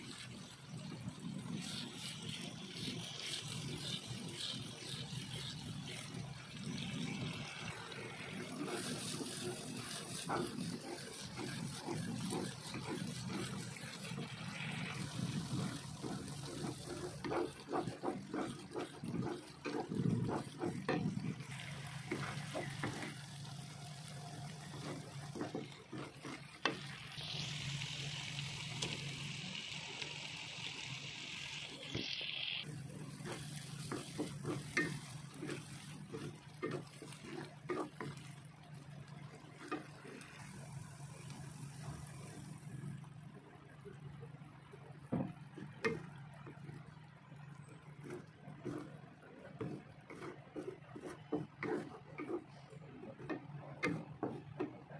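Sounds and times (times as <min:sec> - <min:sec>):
spice paste sizzling in oil: 0:00.0 - 0:43.0, 0:45.5 - 0:54.7
wooden spatula scraping pan: 0:01.5 - 0:27.0, 0:32.7 - 0:40.4, 0:45.2 - 0:54.9.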